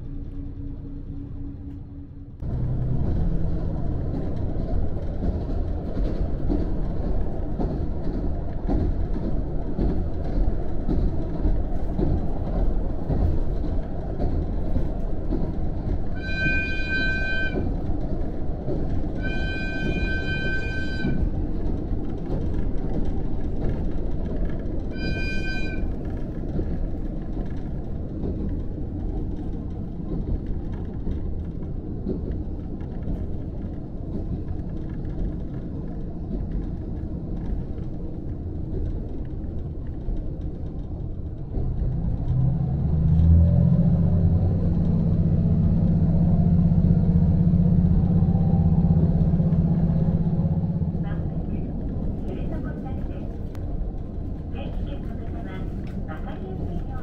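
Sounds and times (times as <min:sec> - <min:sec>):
railcar engine and wheels rumble: 0:00.0 - 0:57.0
train horn blast: 0:16.1 - 0:17.7, 0:19.2 - 0:21.3, 0:24.9 - 0:26.0.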